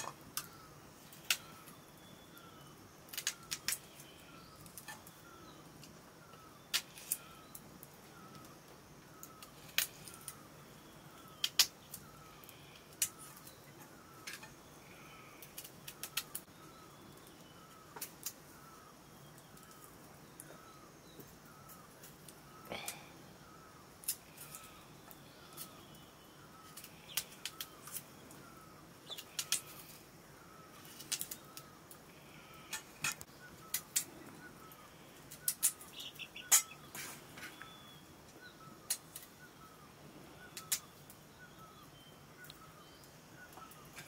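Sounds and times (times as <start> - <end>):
faint bird chirp: 0.0 - 44.0.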